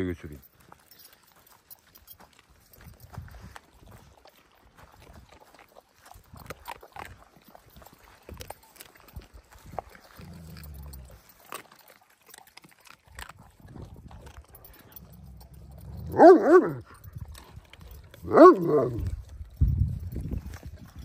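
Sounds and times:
dog barking: 16.0 - 16.9, 18.2 - 19.0.

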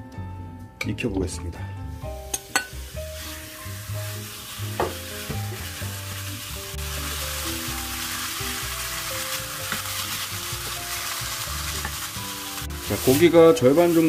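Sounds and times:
pork sizzling in a wok: 2.0 - 14.0.

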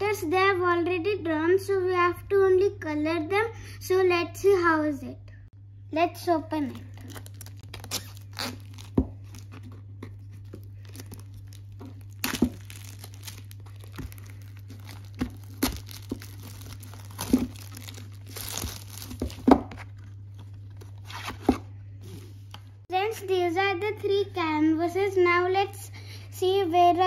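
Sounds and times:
plastic shrink-wrap tearing and crinkling: 6.7 - 21.4.

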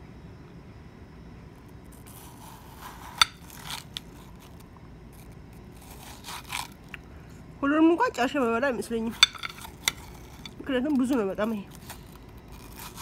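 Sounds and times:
metal spoon scraping watermelon: 2.0 - 4.6, 5.2 - 6.8, 9.0 - 13.0.

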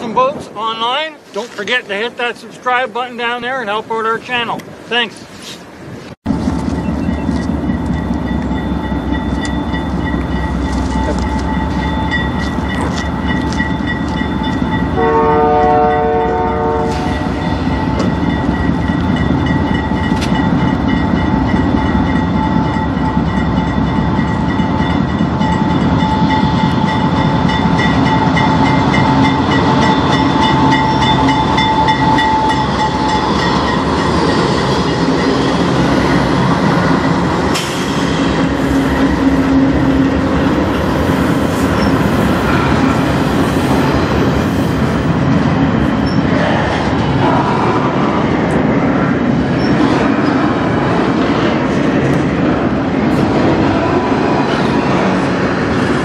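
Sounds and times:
diesel locomotives passing: 0.0 - 56.0
rail cars clacking over joints: 6.3 - 56.0
train horn blast: 15.0 - 17.4.

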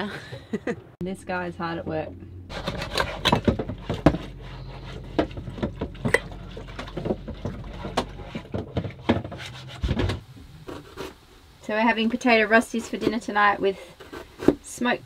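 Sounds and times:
low steady hum: 0.0 - 15.0
kitchenware clinking and knocking: 2.5 - 10.2.

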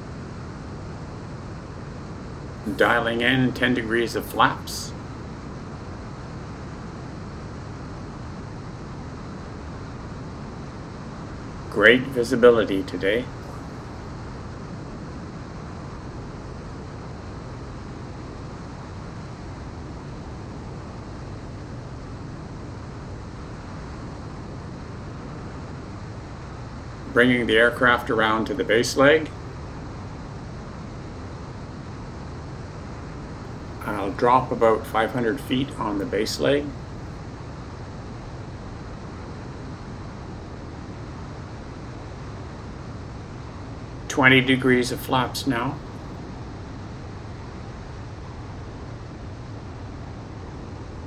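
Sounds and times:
light aircraft engine drone: 0.0 - 51.0
rush of airflow: 0.0 - 51.0.

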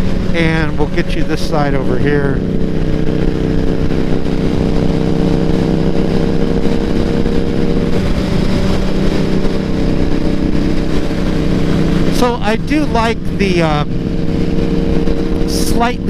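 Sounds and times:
motorcycle engine drone: 0.0 - 16.0
rumbling wind noise: 0.0 - 16.0.

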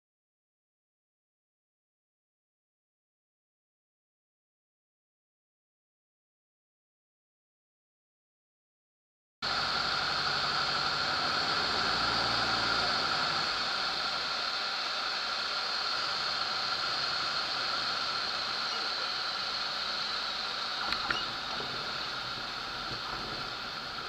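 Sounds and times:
airplane engine: 9.4 - 24.0
wind noise in cockpit: 20.8 - 24.0.

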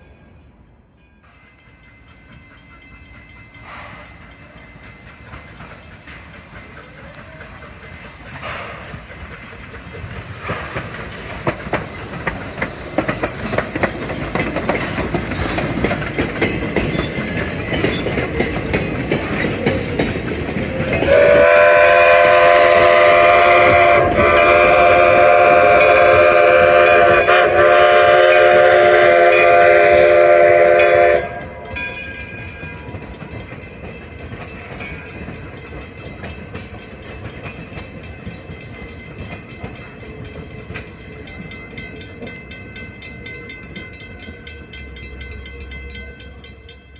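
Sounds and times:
train wheels clickety-clack: 1.2 - 46.9
steam locomotive chuffing: 1.3 - 46.9
steam whistle chord: 21.0 - 31.6.

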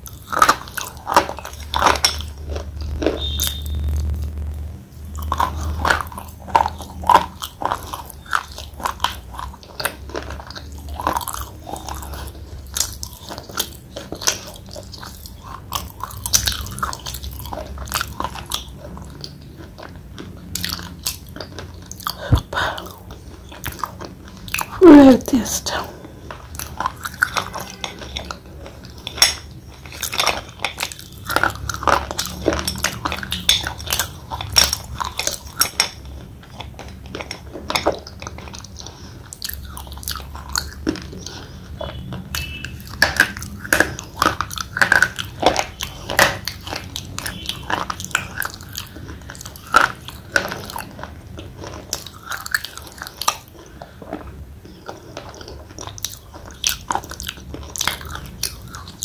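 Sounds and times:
slate pencil being chewed: 25.7 - 59.0.

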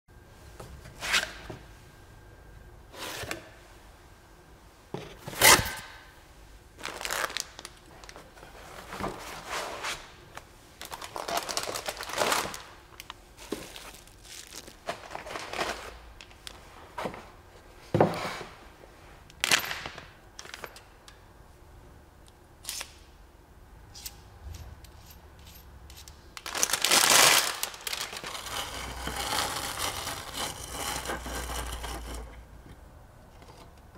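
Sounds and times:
foam packing rustling: 6.8 - 10.1, 10.8 - 12.7, 13.4 - 16.1, 26.4 - 31.9.

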